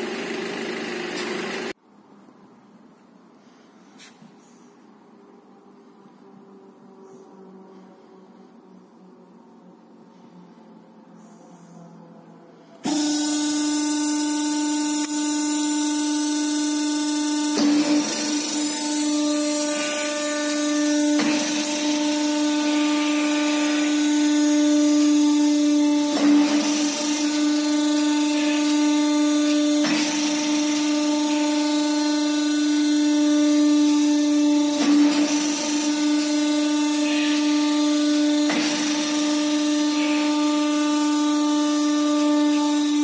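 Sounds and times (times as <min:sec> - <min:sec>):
machine motor whining: 0:12.8 - 0:43.0.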